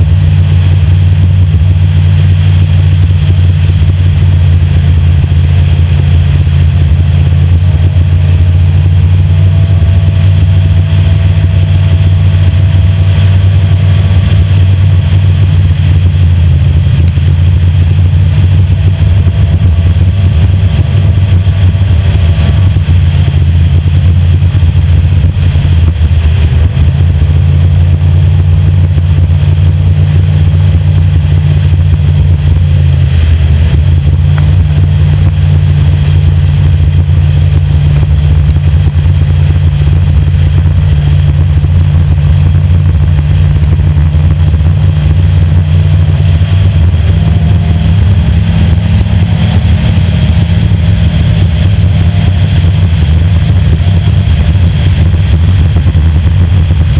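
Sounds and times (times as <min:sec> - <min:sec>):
race boat engine running hard: 0:00.0 - 0:56.9.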